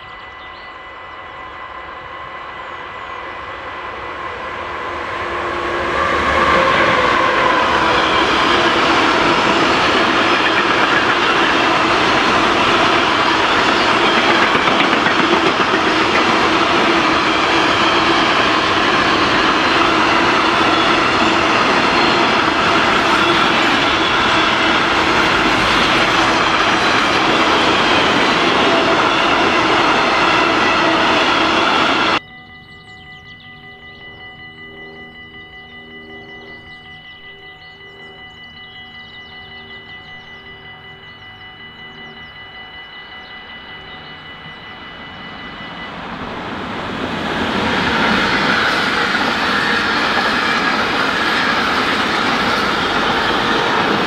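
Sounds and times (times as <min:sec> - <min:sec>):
train wheels rolling on rails: 0:02.0 - 0:32.2, 0:41.1 - 0:54.0.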